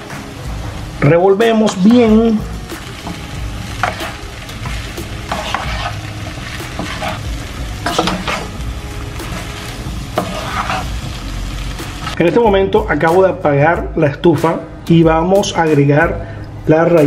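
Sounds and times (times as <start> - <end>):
rice sizzling in pan: 0.0 - 12.3
spatula scraping pan: 3.0 - 8.6, 9.4 - 11.0.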